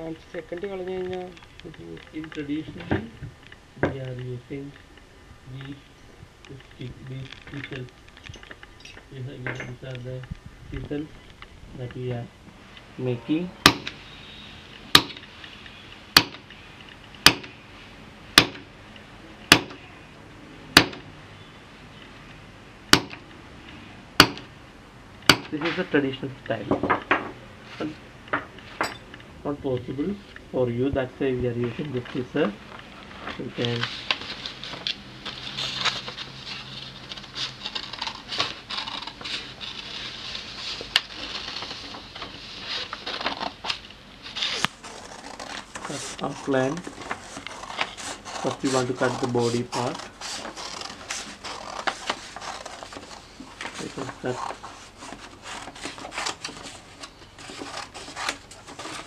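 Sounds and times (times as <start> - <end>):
paper crackling and rustling: 31.7 - 59.0
scissors cutting paper: 44.5 - 53.2, 53.8 - 59.0.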